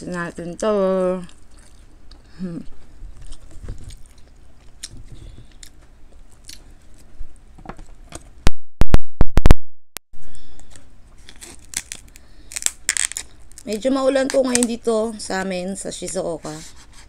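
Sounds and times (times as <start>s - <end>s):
crab shell crackling and crunching: 10.6s - 14.9s.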